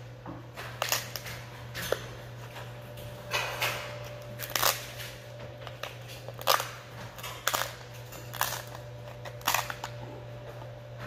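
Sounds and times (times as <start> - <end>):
low steady hum: 0.0 - 11.0
crab shell cracking: 4.4 - 4.9, 5.7 - 10.0.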